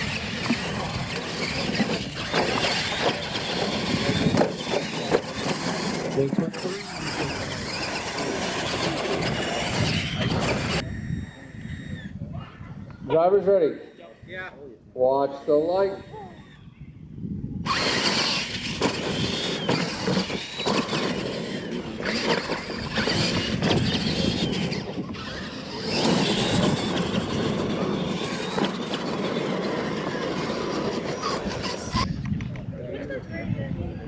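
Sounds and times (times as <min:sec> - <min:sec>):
tyres churning dirt: 0:00.0 - 0:11.1, 0:17.7 - 0:32.1
toy truck motors whining: 0:00.0 - 0:12.2, 0:15.4 - 0:16.7, 0:17.6 - 0:32.2.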